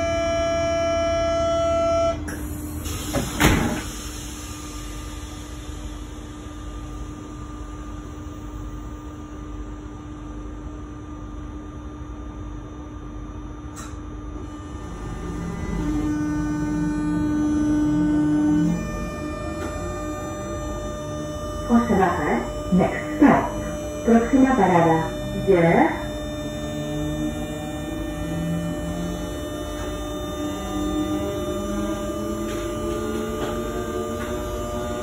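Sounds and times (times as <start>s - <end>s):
train door warning tone: 0.0s - 10.2s, 13.5s - 35.0s
train hum: 0.0s - 35.0s
sliding doors shutting with thud: 3.1s - 3.9s.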